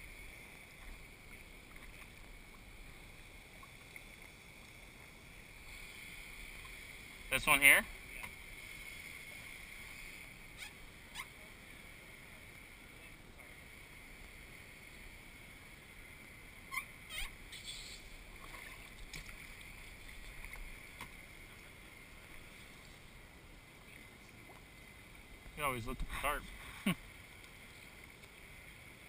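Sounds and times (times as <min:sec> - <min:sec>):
paddle drips and splashes: 0:00.0 - 0:07.3, 0:17.4 - 0:29.0
low steady hiss: 0:00.0 - 0:29.0.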